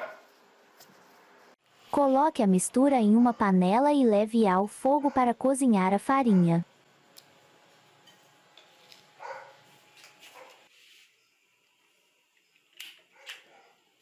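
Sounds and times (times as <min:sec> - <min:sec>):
distant dog barking: 0:00.0 - 0:00.3, 0:04.9 - 0:05.4, 0:09.2 - 0:09.7, 0:10.3 - 0:10.7, 0:13.1 - 0:13.9.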